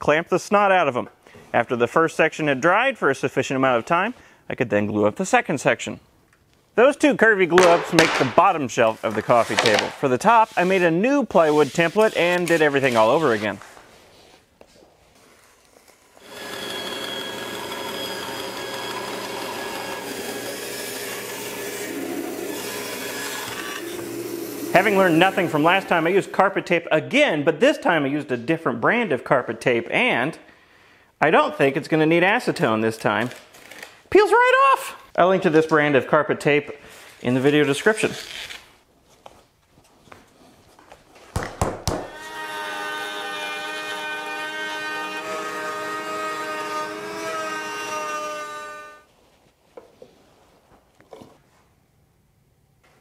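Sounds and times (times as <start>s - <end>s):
template thumping onto boards: 7.6s - 8.5s, 9.1s - 10.0s
bandsaw cutting wood: 15.8s - 26.4s, 42.1s - 49.0s
router motor whine: 16.1s - 26.1s, 42.2s - 49.0s.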